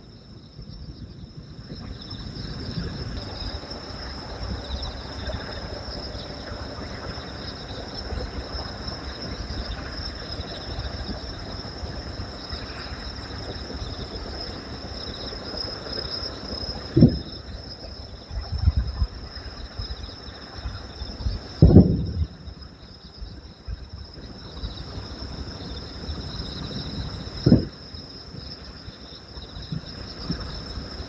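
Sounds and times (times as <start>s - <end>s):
insects chirping: 0.0s - 31.0s.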